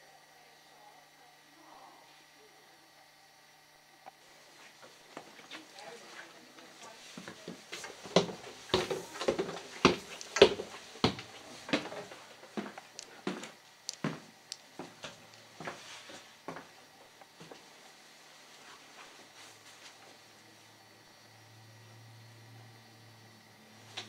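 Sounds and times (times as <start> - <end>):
footsteps on wooden stairs: 5.1 - 17.7.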